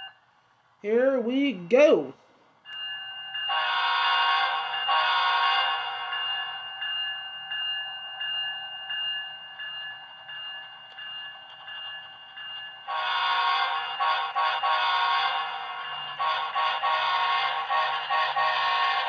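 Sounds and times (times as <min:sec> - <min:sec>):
locomotive horn blasts: 0:03.5 - 0:05.8, 0:12.9 - 0:15.5, 0:16.2 - 0:19.0.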